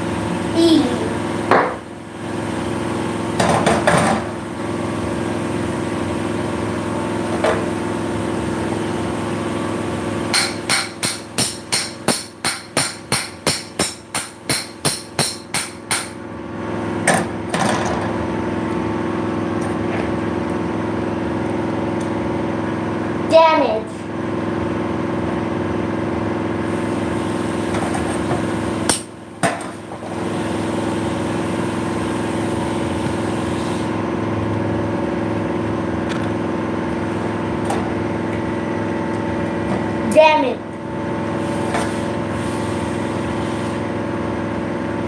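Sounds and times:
hammer striking object: 10.3 - 16.2.

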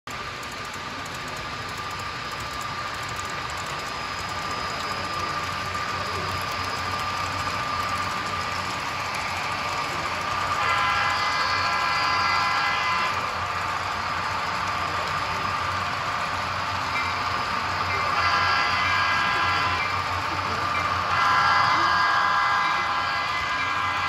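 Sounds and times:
model train running: 0.1 - 24.0
train horn blast: 10.0 - 13.4, 18.0 - 20.1, 20.8 - 24.0.

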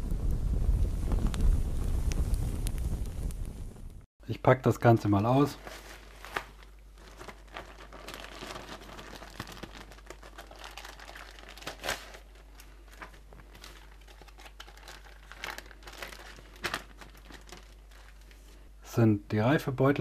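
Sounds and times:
plastic bags crinkling: 5.3 - 18.7.

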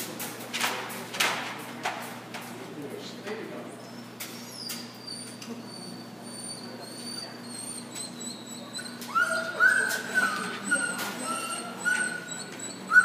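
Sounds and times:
dog whining: 3.8 - 13.0.

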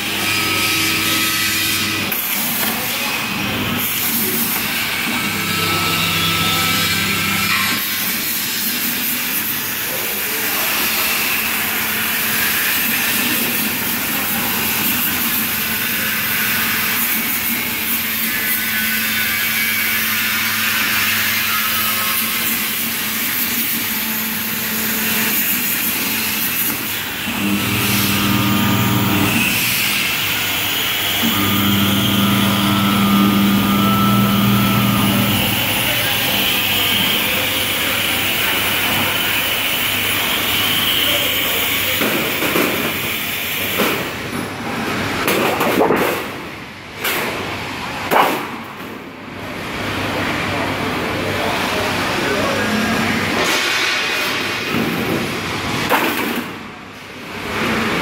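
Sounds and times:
low machine hum: 27.2 - 30.3, 31.2 - 38.0.

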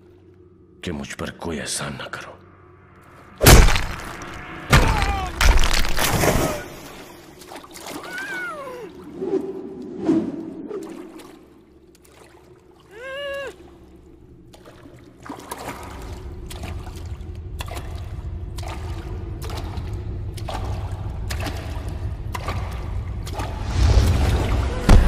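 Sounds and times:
low rumble: 0.0 - 7.4, 15.6 - 25.0
feet splashing through water: 3.5 - 9.1, 10.6 - 24.7
muffled cry from gagged woman: 8.0 - 9.0, 12.9 - 13.7.

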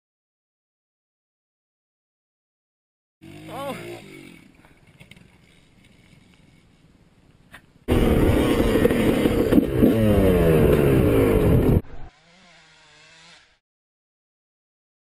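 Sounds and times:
dirt bike engine revving: 3.2 - 4.7, 7.9 - 13.6.

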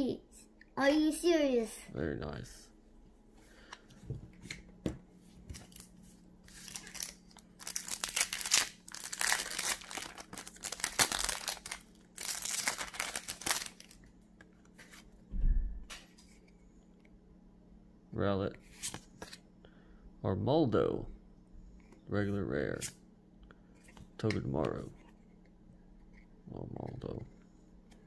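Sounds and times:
foil wrapper tearing and crinkling: 6.5 - 14.0.

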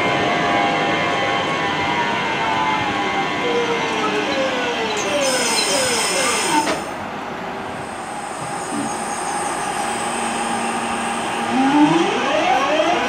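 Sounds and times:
electric train motor whine: 7.9 - 13.0.

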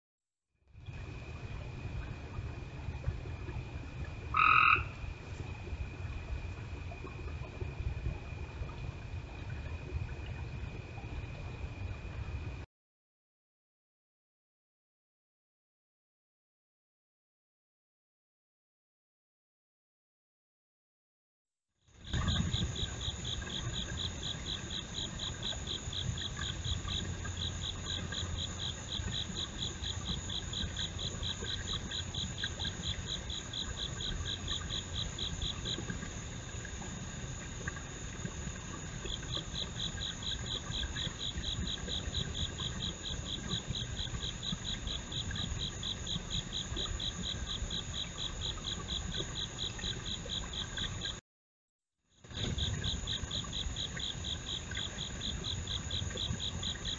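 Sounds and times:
insect rapid high trill: 4.3 - 5.0.

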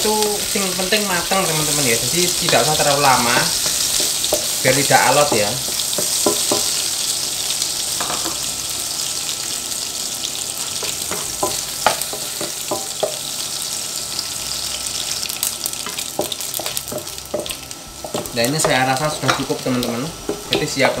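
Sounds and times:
fish sizzling in hot oil: 0.0 - 21.0
spatula scraping and tapping pan: 2.4 - 6.8, 10.8 - 13.2, 15.8 - 19.6.

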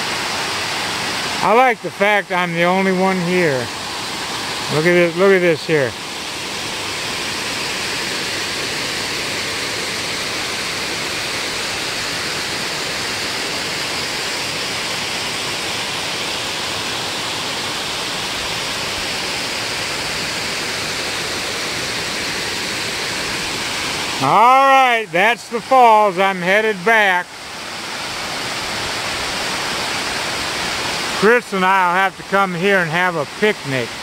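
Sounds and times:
waterfall rushing over rock: 0.0 - 34.0.

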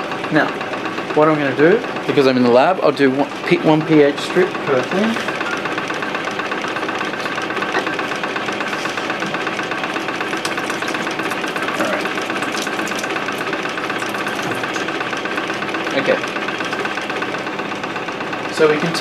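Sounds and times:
pump running: 0.0 - 19.0
water pouring into bucket: 10.1 - 15.0.

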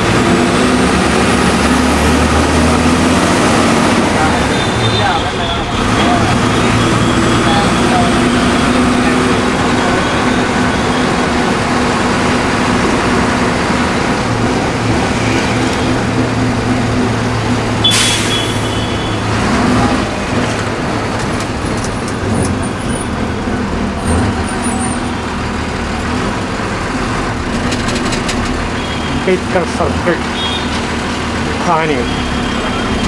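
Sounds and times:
vehicle engine hum and road noise: 0.0 - 33.0
short sharp hiss: 17.8 - 18.7.

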